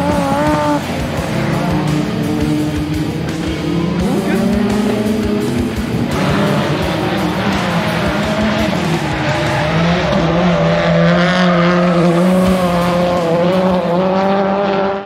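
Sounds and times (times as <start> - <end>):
rally car engine running hard: 0.0 - 15.0.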